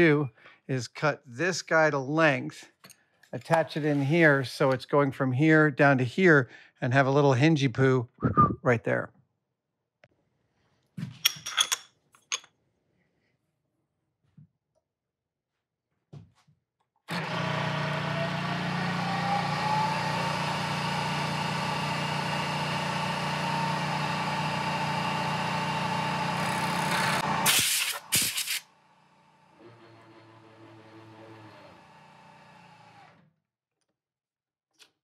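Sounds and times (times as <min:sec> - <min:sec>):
power tool cutting: 0:17.1 - 0:28.7, 0:29.4 - 0:33.2.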